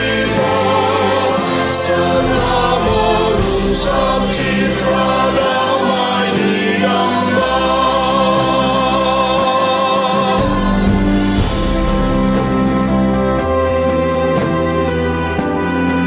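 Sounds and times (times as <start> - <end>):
mixed choir singing a hymn: 0.0 - 13.4.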